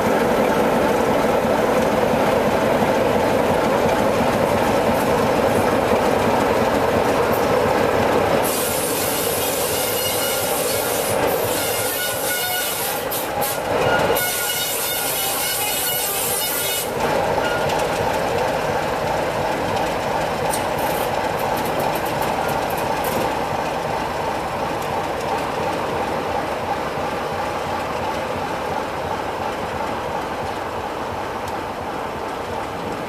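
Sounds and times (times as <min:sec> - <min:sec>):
diesel locomotive engine running: 0:00.0 - 0:33.0
train wheel squeal: 0:08.4 - 0:17.8
wheels clicking over rail joints: 0:16.9 - 0:26.8.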